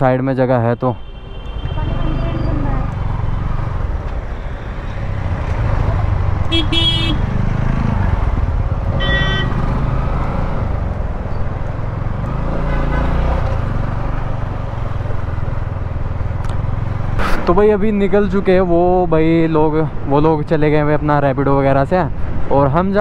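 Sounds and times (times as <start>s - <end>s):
road and wind noise: 0.0s - 23.0s
vehicle horn toots: 6.5s - 7.3s, 9.0s - 9.7s, 12.6s - 13.3s.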